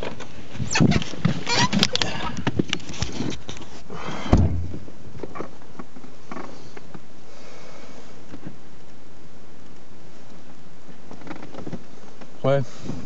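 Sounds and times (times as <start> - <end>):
faint clicks and rustles: 0.0 - 13.0
steady hiss: 0.0 - 13.0
car door shutting: 4.2 - 4.9.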